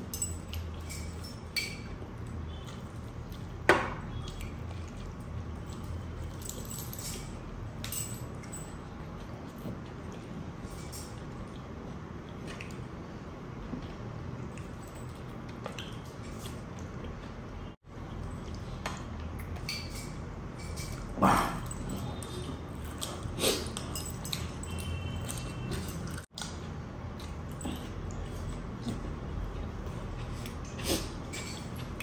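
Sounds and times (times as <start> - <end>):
man chewing: 21.3 - 32.0.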